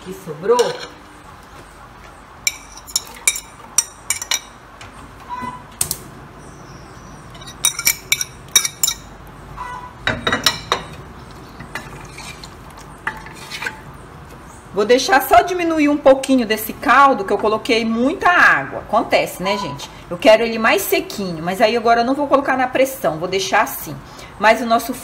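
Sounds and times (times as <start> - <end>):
fork clinking on ceramic plate: 7.4 - 9.1.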